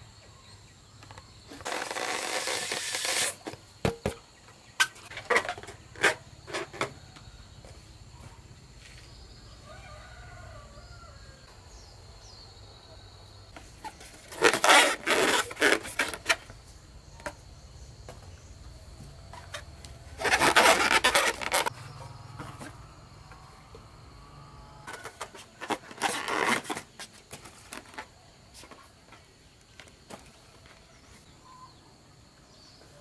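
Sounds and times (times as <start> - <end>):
balloon packets rustling: 1.6 - 3.5, 13.7 - 16.4, 20.2 - 21.7.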